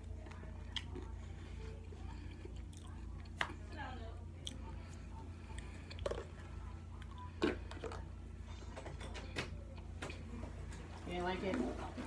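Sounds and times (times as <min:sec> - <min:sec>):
chewing and mouth sounds: 0:00.0 - 0:08.0
steady low hum: 0:00.0 - 0:12.0.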